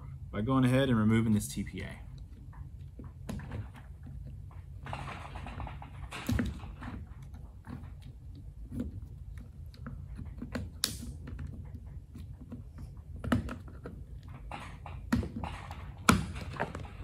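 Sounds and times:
low steady hum: 0:00.0 - 0:17.0
sharp plastic snaps: 0:09.8 - 0:11.6.

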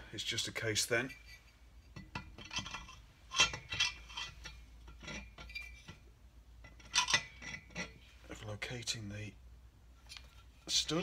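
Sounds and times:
metallic clinks and scrapes: 0:00.8 - 0:08.4.

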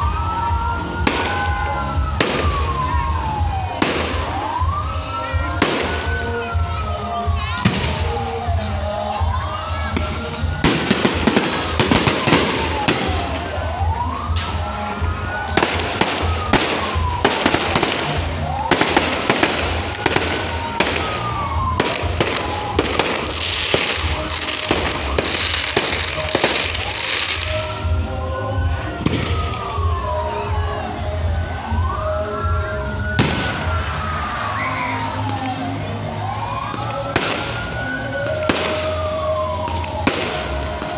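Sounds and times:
fireworks bangs and crackling: 0:00.0 - 0:40.9
siren wailing: 0:00.0 - 0:40.9.

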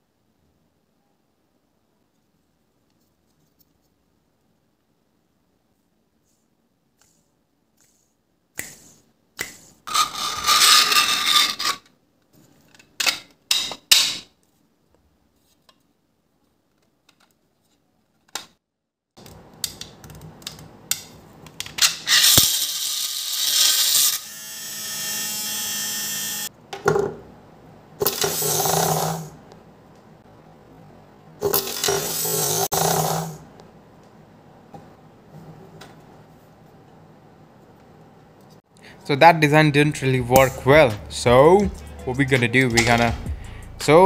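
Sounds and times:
small electric motor running: 0:22.1 - 0:26.5.

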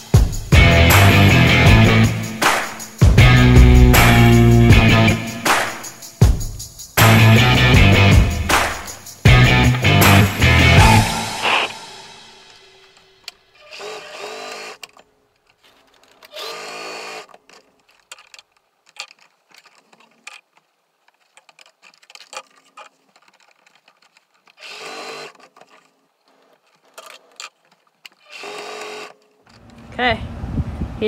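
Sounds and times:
sewing machine stitching: 0:13.6 - 0:15.0, 0:15.8 - 0:18.4, 0:21.6 - 0:27.5, 0:28.1 - 0:29.2
fabric handling and clicks: 0:17.3 - 0:24.6.

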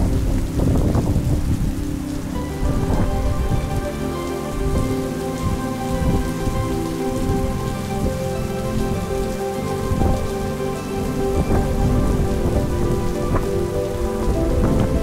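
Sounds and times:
low rumble: 0:00.0 - 0:15.0
steady rain falling: 0:00.0 - 0:15.0.

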